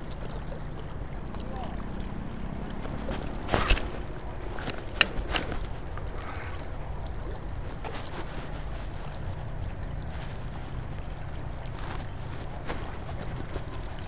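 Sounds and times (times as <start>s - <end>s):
wind and water noise: 0.0s - 14.0s
rustle: 2.4s - 14.0s.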